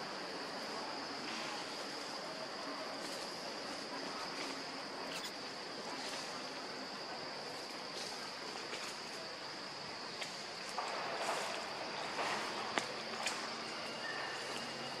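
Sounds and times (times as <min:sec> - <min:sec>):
high-pitched insect drone: 0:05.0 - 0:05.5.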